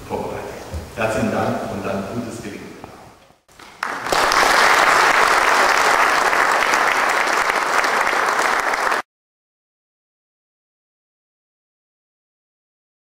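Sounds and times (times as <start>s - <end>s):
audience applauding: 3.5s - 9.1s.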